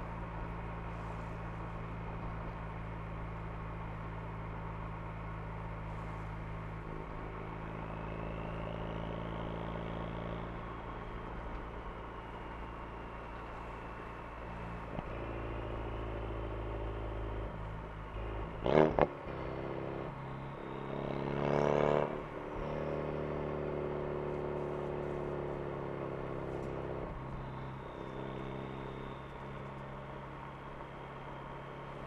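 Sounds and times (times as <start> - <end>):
car engine and exhaust running: 0.0 - 32.0
engine revs rising: 12.7 - 29.8.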